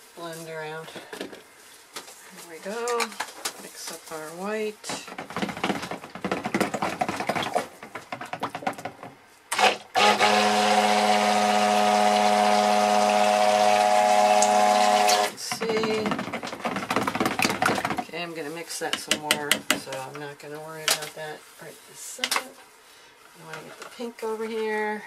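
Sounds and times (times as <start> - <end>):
stick blender motor running: 9.5 - 16.3
blender head clicking and scraping bowl: 9.5 - 17.9.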